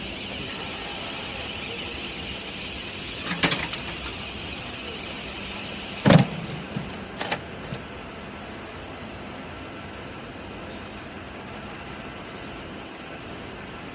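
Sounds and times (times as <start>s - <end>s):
laser cutting machine hissing: 0.0s - 9.3s
loud clunk: 6.0s - 7.8s.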